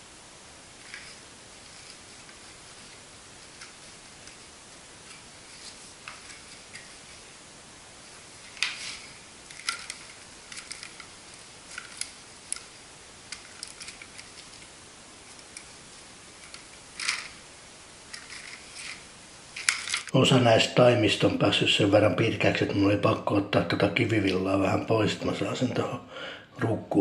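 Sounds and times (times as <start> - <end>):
potting soil rustling: 0.0 - 20.2
plastic plant pots clicking: 8.4 - 14.7, 16.4 - 17.4, 18.1 - 19.0, 19.6 - 20.1.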